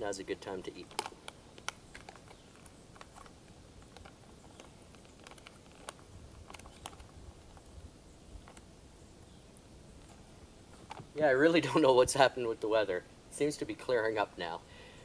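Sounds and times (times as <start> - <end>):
plastic food pouch crinkling: 0.6 - 7.7.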